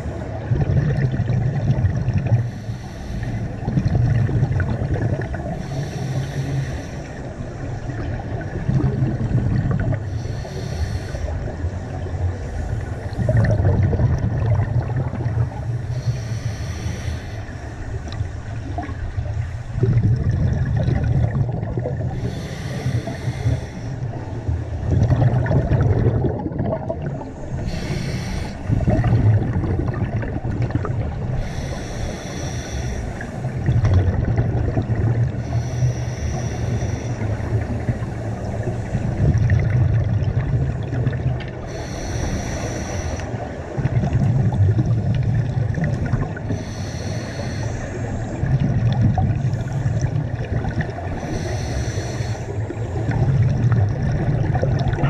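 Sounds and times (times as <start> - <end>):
bubbling exhale: 0.0 - 7.3, 7.9 - 11.7, 12.4 - 55.0
regulator hissing inhale: 2.4 - 3.7, 5.5 - 8.1, 10.1 - 11.8, 15.5 - 19.8, 22.1 - 24.4, 27.2 - 29.1, 31.3 - 33.7, 35.3 - 39.2, 41.6 - 43.8, 46.4 - 48.6, 49.4 - 50.2, 51.0 - 53.2.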